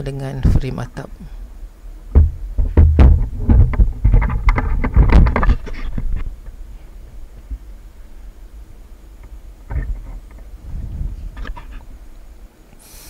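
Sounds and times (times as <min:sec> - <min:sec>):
wood knocking on wood: 0:02.1 - 0:06.2
wood scraping: 0:02.2 - 0:07.2.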